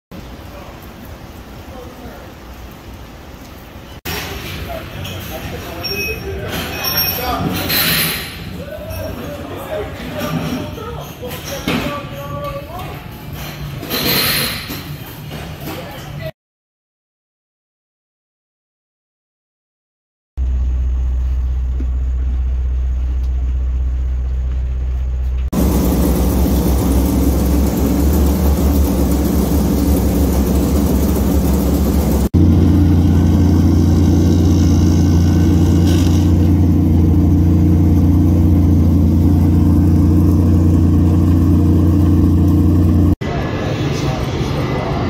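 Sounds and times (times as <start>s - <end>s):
engines idling: 20.4s - 43.2s
loud rushing noise: 25.6s - 37.9s, 42.7s - 45.0s.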